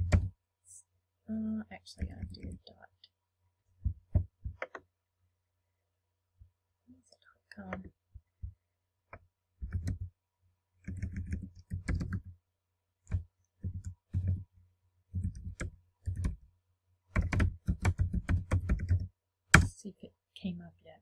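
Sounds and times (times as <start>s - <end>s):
keyboard typing clicks: 17.2s - 19.0s.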